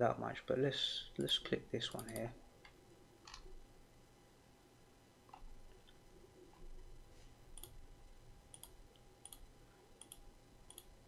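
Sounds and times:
computer mouse clicks: 0:01.9 - 0:03.5, 0:07.5 - 0:07.8, 0:08.5 - 0:10.9.

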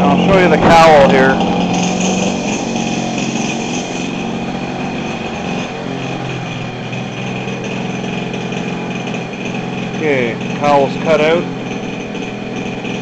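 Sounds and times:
model airplane engine running: 0:00.0 - 0:13.0.

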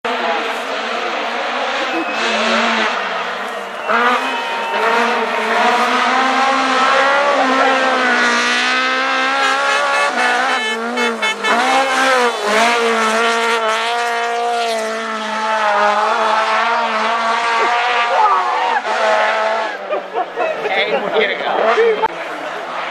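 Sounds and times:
rally car engine revving: 0:00.0 - 0:22.9.

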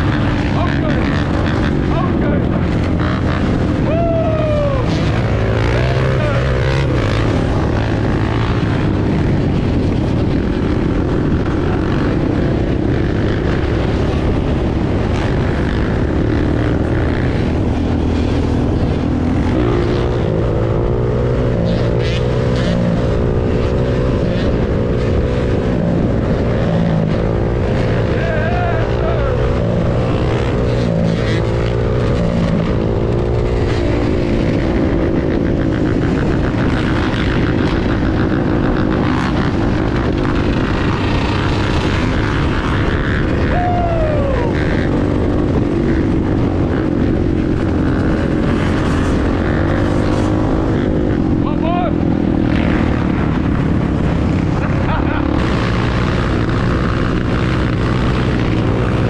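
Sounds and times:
dirt bikes and quads: 0:00.0 - 0:59.0
quad engine revving: 0:00.0 - 0:59.0.

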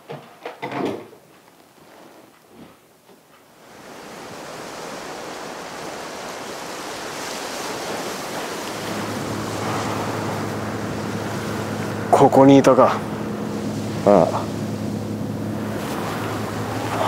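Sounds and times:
wind: 0:00.0 - 0:17.0
surf: 0:03.6 - 0:17.0
low steady hum: 0:07.2 - 0:17.0.

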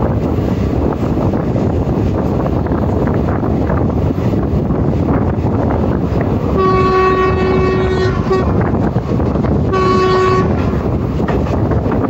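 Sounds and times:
train rumble and rail clatter: 0:00.0 - 0:12.0
wind of passing train: 0:00.0 - 0:12.0
locomotive horn blast: 0:06.6 - 0:08.8, 0:09.6 - 0:11.0.

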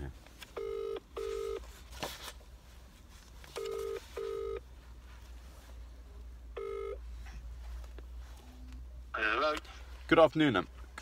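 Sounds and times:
phone ringback tone: 0:00.6 - 0:01.6, 0:03.6 - 0:04.6, 0:06.6 - 0:07.0.

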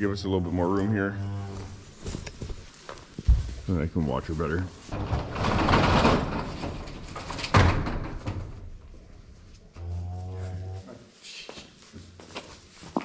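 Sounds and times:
cow mooing: 0:00.8 - 0:01.9
overhead door rattling: 0:04.8 - 0:09.6.

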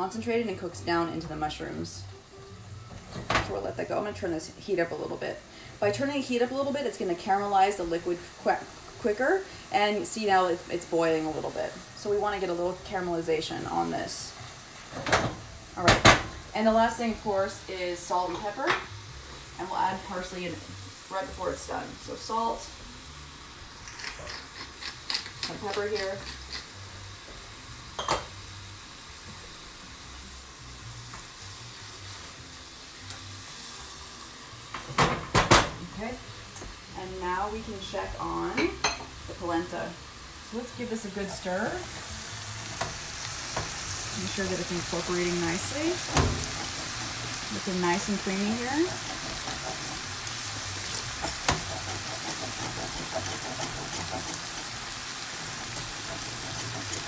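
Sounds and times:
mushrooms sizzling in a frying pan: 0:00.0 - 0:57.0
spatula stirring in a pan: 0:41.4 - 0:57.0.

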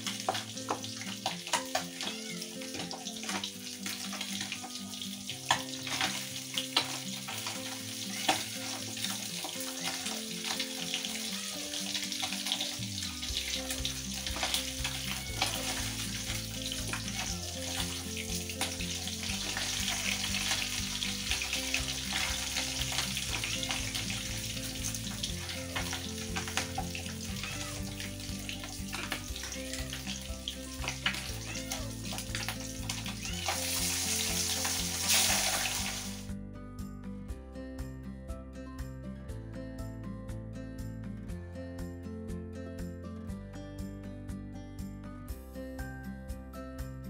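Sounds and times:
hot oil sizzling and crackling: 0:00.0 - 0:36.3
soft background music: 0:00.0 - 0:47.0.

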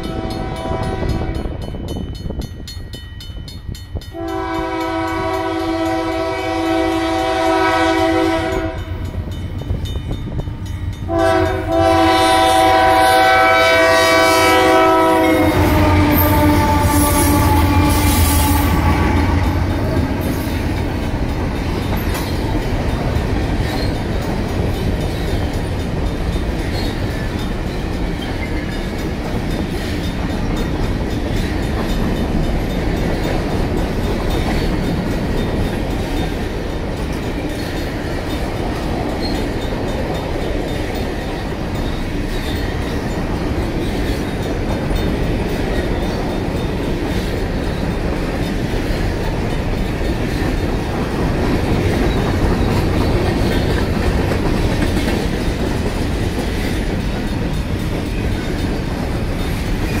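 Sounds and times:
locomotive horn blasts: 0:00.0 - 0:01.6, 0:04.1 - 0:09.1, 0:11.1 - 0:20.3
train wheels clattering: 0:00.0 - 1:00.0.

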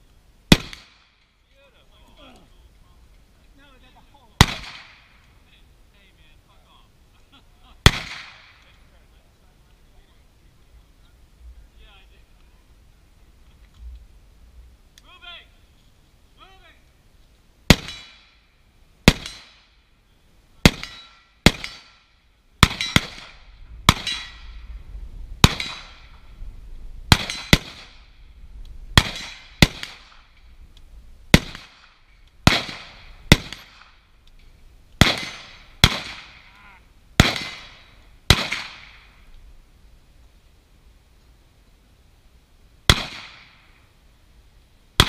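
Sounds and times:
rifle shots echoing: 0:00.5 - 0:01.2, 0:04.4 - 0:05.2, 0:07.8 - 0:08.6, 0:17.7 - 0:18.4, 0:19.0 - 0:19.8, 0:20.6 - 0:24.7, 0:25.4 - 0:26.3, 0:27.1 - 0:28.2, 0:28.9 - 0:30.4, 0:31.3 - 0:34.1, 0:35.0 - 0:36.5, 0:37.2 - 0:39.2, 0:42.9 - 0:43.7.

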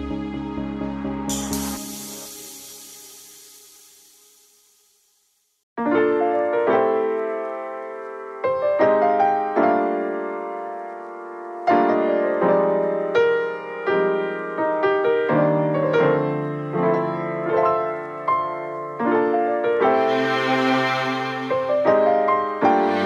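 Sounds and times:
piano background music: 0:00.0 - 0:04.6, 0:05.8 - 0:23.0.

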